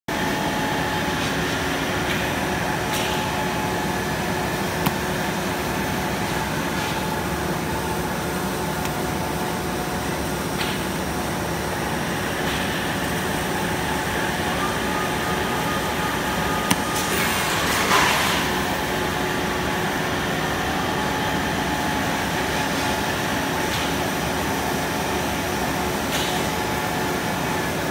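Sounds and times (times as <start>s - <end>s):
machinery humming: 0.1s - 22.6s.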